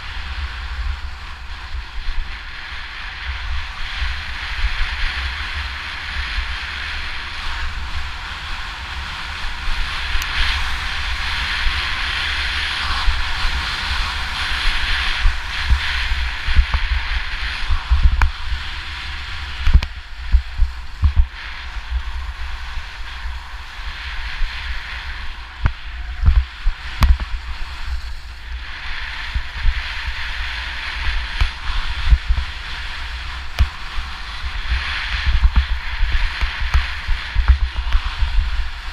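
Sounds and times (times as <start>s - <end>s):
skis scraping over crusty snow: 0.0s - 38.9s
wind buffeting microphone: 0.0s - 38.9s.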